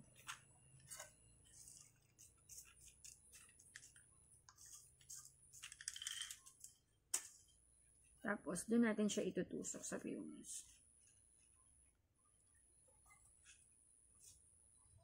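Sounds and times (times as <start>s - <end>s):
stones clicking and rattling: 5.6s - 7.3s.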